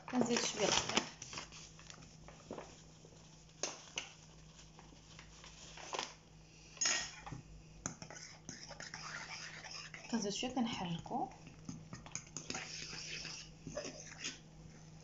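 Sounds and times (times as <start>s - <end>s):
paper bag rustling: 0.0s - 6.2s
fork scraping ceramic bowl: 7.9s - 11.0s, 11.9s - 14.4s.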